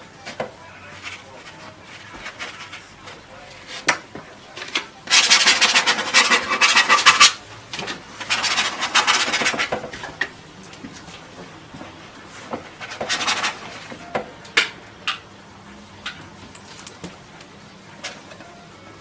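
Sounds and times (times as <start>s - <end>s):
tool scrubbing paint on palette: 5.1s - 7.4s.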